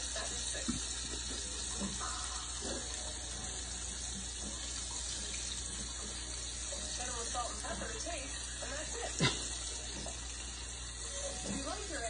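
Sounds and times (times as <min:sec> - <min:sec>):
hot fat sizzling in a frying pan: 0:00.0 - 0:12.0.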